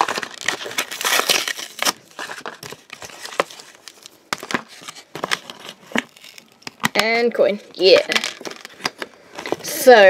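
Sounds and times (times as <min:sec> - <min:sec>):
cardboard tearing: 0:00.0 - 0:06.9
plastic blister pack crinkling: 0:00.0 - 0:07.2, 0:07.8 - 0:09.7.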